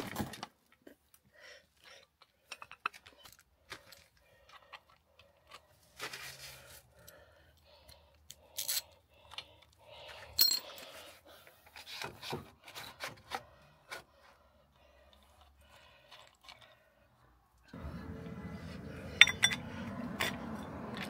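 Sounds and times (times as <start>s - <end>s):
metal clinks and scrapes: 10.2s - 11.0s, 18.3s - 21.0s.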